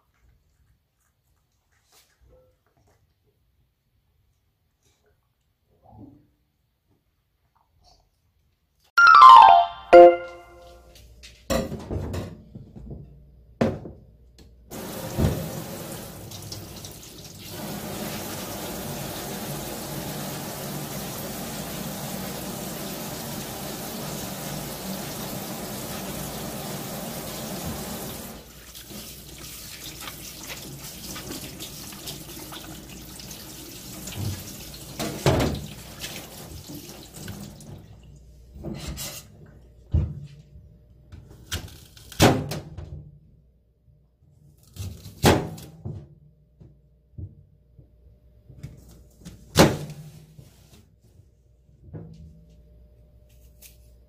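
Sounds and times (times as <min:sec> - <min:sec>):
faucet water running into sink: 0:14.7 - 0:37.9.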